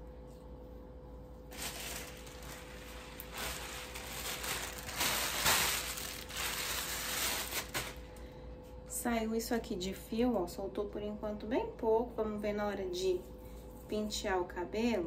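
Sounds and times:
plastic shower cap crinkling: 1.5s - 8.2s.

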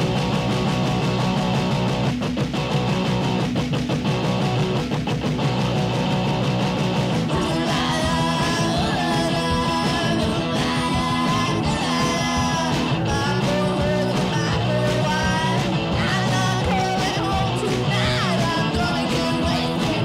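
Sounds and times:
punk rock electric guitar: 0.0s - 20.0s
person singing: 7.3s - 20.0s.

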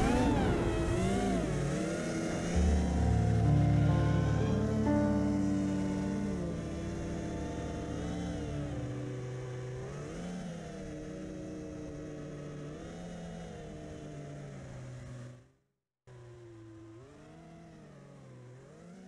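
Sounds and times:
quadcopter motors whining: 0.0s - 4.8s, 5.4s - 15.4s.

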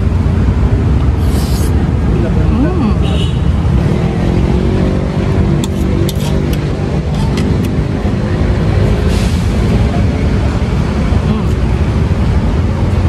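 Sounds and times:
road traffic rumble: 0.0s - 13.0s
vehicle engine hum: 0.0s - 13.0s.

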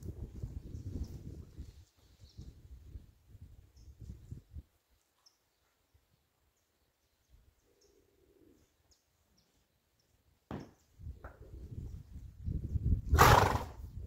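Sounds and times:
small birds chirping: 0.6s - 3.0s, 3.7s - 11.2s.

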